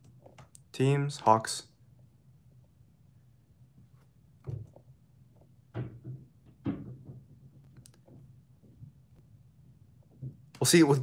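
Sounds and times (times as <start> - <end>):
faint steady hum: 0.0 - 11.0
soft knocks and taps: 4.4 - 9.0.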